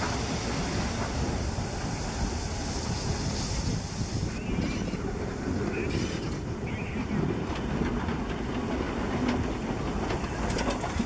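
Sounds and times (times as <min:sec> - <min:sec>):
steam hiss: 0:00.0 - 0:06.4
train rolling low rumble: 0:00.0 - 0:11.0
wheels clicking over rail joints: 0:03.6 - 0:11.0.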